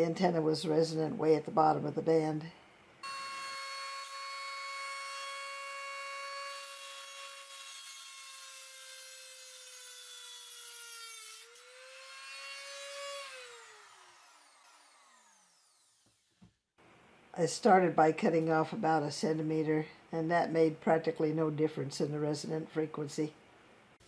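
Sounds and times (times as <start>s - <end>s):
rotary tool whining: 3.0s - 16.4s.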